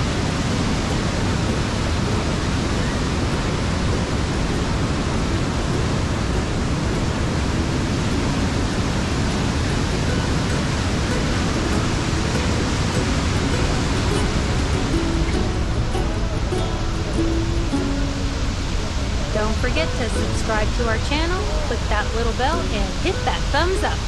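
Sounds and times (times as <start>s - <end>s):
waterfall rushing onto rocks: 0.0s - 21.8s.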